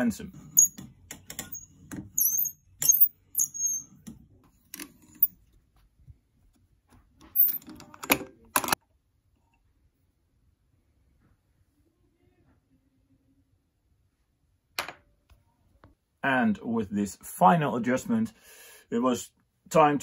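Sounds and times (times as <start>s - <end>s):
tube cutter squeaking: 0.6s - 0.8s, 1.4s - 4.0s.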